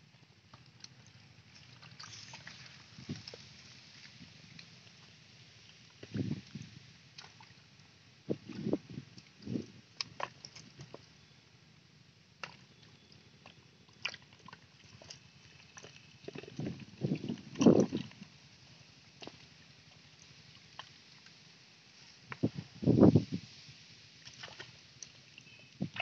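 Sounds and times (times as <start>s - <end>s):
water sloshes and wet slaps: 0.7s - 4.7s, 7.1s - 7.6s, 12.4s - 12.9s, 14.0s - 18.2s, 24.2s - 26.0s.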